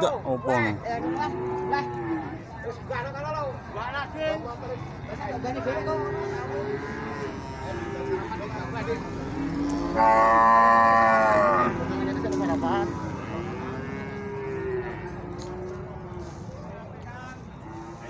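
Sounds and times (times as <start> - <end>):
cow mooing loudly: 9.0 - 16.2.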